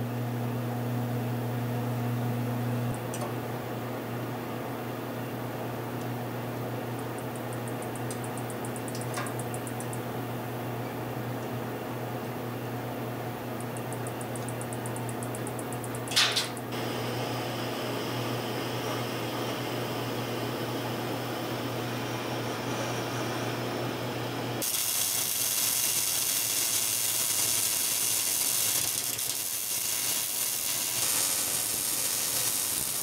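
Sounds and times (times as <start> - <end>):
steady low hum: 0.0 - 24.6
welding arc crackling hiss: 24.6 - 33.0.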